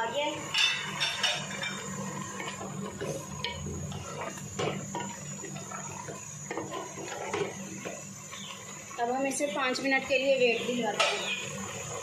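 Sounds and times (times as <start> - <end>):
boiling liquid bubbling: 0.0 - 12.0
steady low hum: 0.0 - 12.0
wooden spoon scraping a pot: 1.1 - 8.0.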